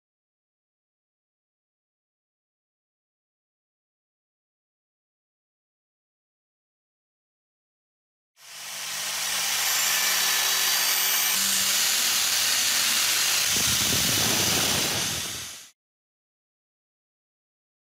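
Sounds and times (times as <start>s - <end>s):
grinding wheel grinding steel blade: 8.4s - 15.7s
motor hum: 8.4s - 15.7s.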